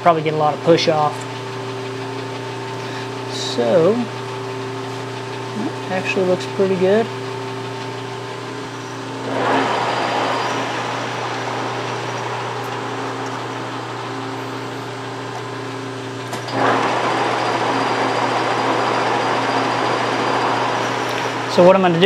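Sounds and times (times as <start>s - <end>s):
lathe motor hum and gear whir: 0.0s - 22.0s
lathe click: 10.5s - 15.5s.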